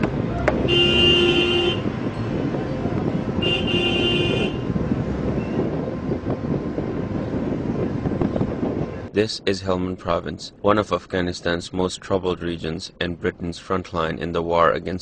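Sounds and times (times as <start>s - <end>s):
street traffic: 0.0s - 15.0s
car horn blasts: 0.5s - 2.0s, 3.4s - 4.8s.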